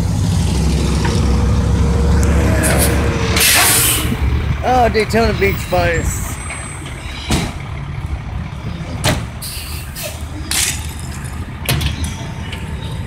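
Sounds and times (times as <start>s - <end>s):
diesel engine idling: 0.0s - 13.0s.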